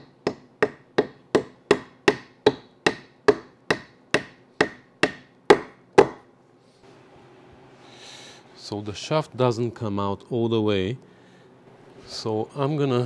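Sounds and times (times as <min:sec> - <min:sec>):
hammer tapping metal bushing: 0:00.0 - 0:06.3.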